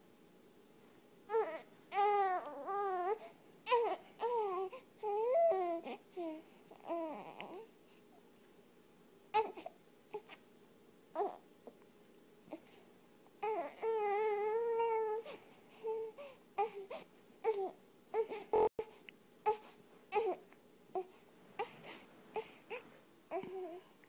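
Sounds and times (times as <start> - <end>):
infant crying: 1.3 - 7.7, 11.2 - 11.4, 13.4 - 18.8, 19.4 - 21.8, 22.4 - 23.9.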